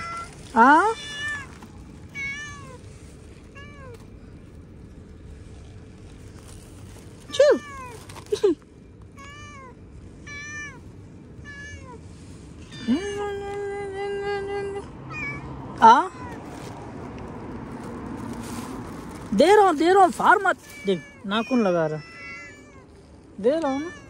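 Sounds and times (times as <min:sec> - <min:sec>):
cats meowing: 0:00.0 - 0:02.8, 0:09.2 - 0:13.7, 0:15.1 - 0:16.5, 0:20.2 - 0:24.0.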